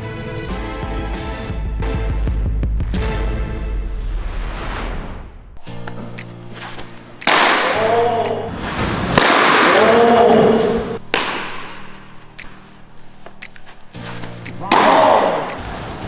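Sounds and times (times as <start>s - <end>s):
background music: 0.0s - 16.0s
sharp crack: 7.2s - 12.6s.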